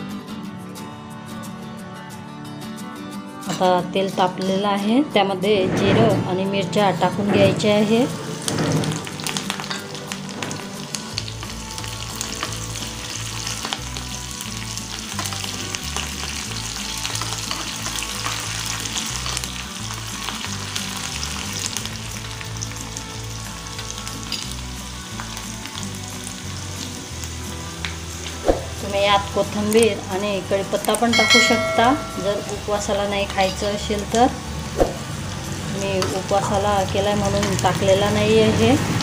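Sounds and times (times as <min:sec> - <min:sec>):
seeds sizzling in hot oil: 0:08.2 - 0:39.0.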